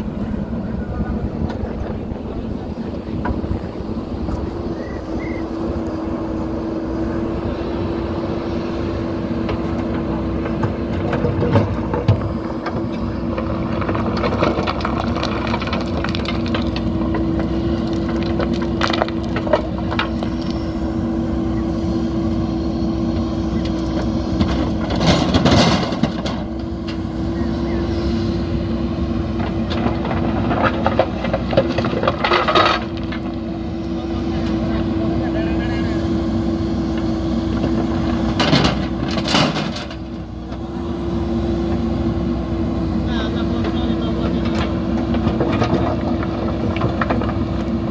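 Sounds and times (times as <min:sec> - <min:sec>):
diesel engine running: 0:00.0 - 0:47.9
rocks clattering against steel bucket: 0:10.5 - 0:20.6, 0:29.6 - 0:33.4, 0:43.6 - 0:47.9.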